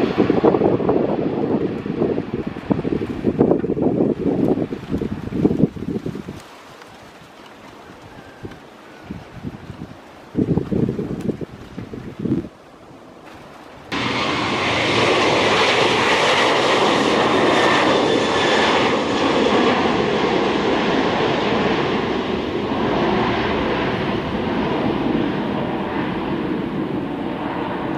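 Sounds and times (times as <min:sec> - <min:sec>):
jet airliner roar with whine: 0:00.0 - 0:06.1, 0:13.8 - 0:27.9.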